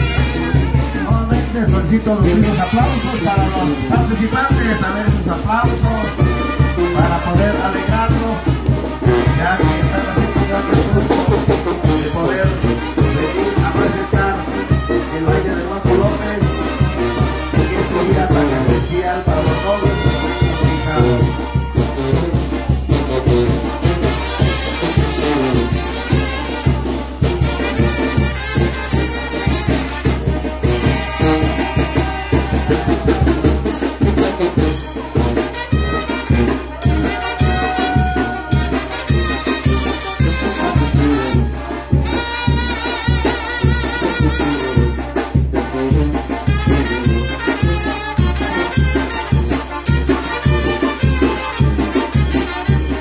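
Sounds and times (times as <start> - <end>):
brass band playing dance tune: 0.0 - 53.0
steady drum beat: 0.0 - 53.0.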